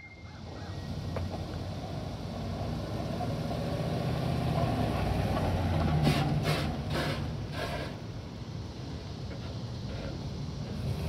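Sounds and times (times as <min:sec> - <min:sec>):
truck engine driving past: 0:00.0 - 0:08.0.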